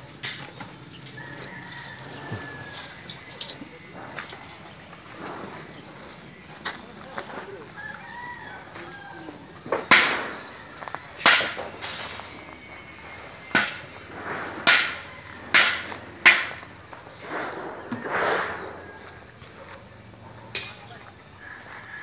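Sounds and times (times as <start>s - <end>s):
sharp cracks with hiss: 9.7s - 10.6s, 11.2s - 19.0s.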